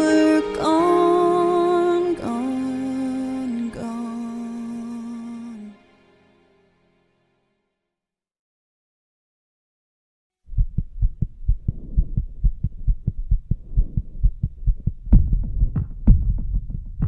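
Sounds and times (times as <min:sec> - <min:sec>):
low throbbing pulse: 0:10.5 - 0:17.0.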